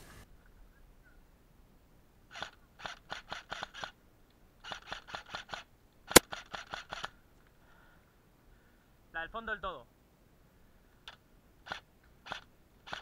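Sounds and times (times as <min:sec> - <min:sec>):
airsoft rifle firing: 0:04.6 - 0:07.2
loud sharp crack: 0:06.1 - 0:07.1.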